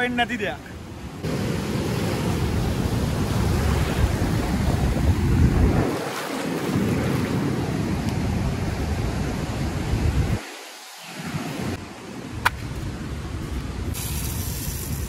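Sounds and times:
wind buffeting microphone: 0:01.2 - 0:10.5
small waves washing on sand: 0:01.2 - 0:11.8.

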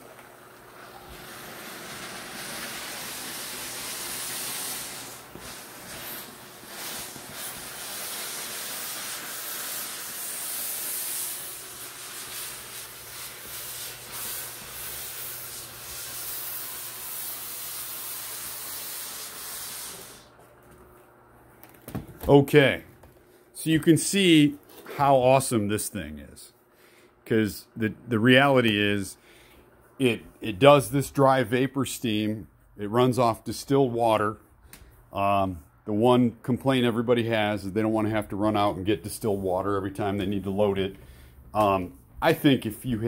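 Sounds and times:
steam cleaner hissing: 0:00.0 - 0:20.4.

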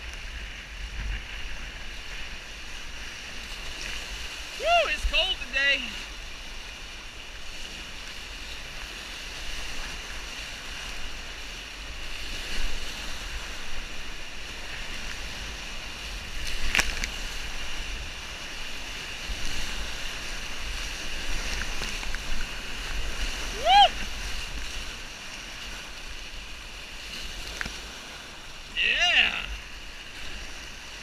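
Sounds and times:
whitewater rapids rushing: 0:04.4 - 0:06.1, 0:17.3 - 0:26.0, 0:28.3 - 0:31.0.

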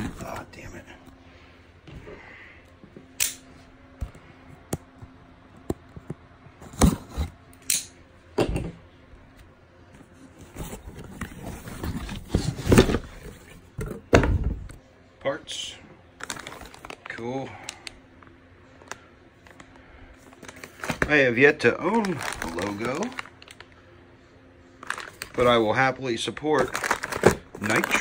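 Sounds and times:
cardboard scraping and rustling: 0:10.0 - 0:13.6.

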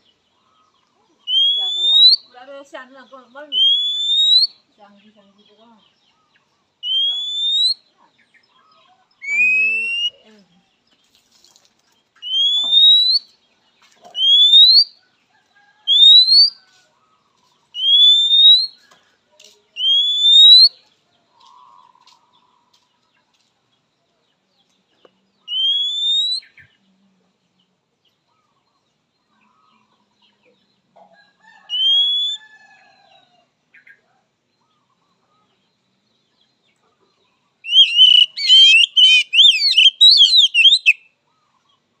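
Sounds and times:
bird song burst: 0:01.2 - 0:02.4, 0:03.5 - 0:04.6, 0:06.2 - 0:07.9, 0:12.2 - 0:13.4, 0:14.2 - 0:14.9, 0:17.8 - 0:18.8, 0:19.8 - 0:20.8, 0:25.4 - 0:26.7, 0:31.7 - 0:32.5, 0:37.6 - 0:41.4
bird rising whistles: 0:03.6 - 0:04.5, 0:06.8 - 0:07.8, 0:12.2 - 0:13.2, 0:14.2 - 0:14.9, 0:15.9 - 0:16.6, 0:17.8 - 0:18.7, 0:19.8 - 0:20.7, 0:25.5 - 0:26.5, 0:31.7 - 0:32.4, 0:37.6 - 0:41.0.

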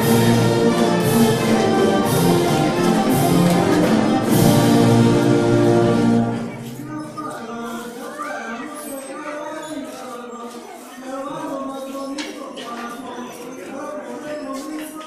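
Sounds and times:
folk dance music with brass: 0:00.0 - 0:07.1
children's voices: 0:04.9 - 0:15.0.

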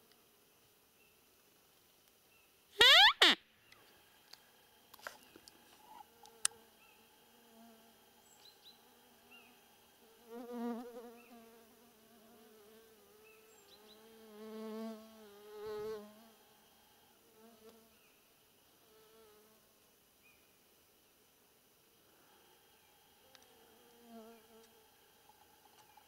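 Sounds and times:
flying insect buzzing: 0:05.4 - 0:18.0, 0:22.1 - 0:26.0.

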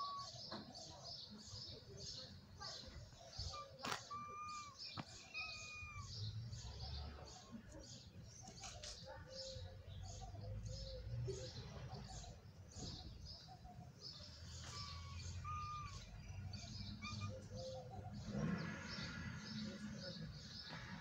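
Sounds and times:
small birds chirping: 0:00.0 - 0:21.0.

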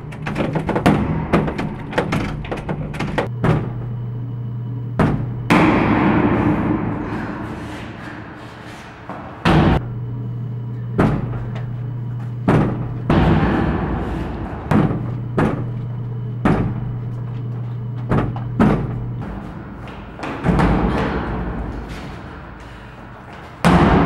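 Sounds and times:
low hum: 0:00.0 - 0:24.0
thuds and hits: 0:00.2 - 0:03.8, 0:05.0 - 0:08.0, 0:11.0 - 0:11.6, 0:12.4 - 0:17.2, 0:18.0 - 0:22.4, 0:23.6 - 0:24.0
door slamming from kick: 0:12.4 - 0:15.8.

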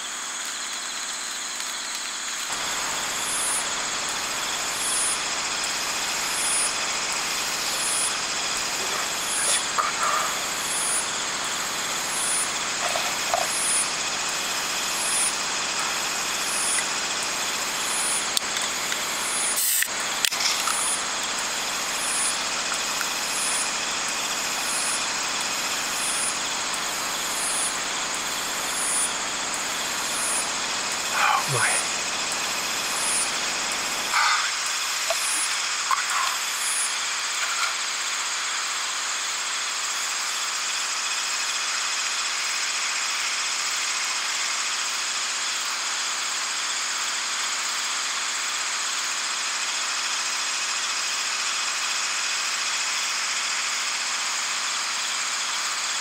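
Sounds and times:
night insects chirping: 0:00.0 - 0:39.2.

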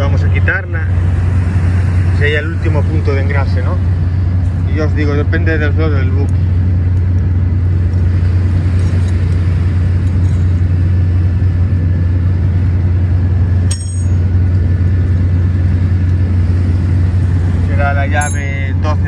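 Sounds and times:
machinery drone: 0:00.0 - 0:19.0.

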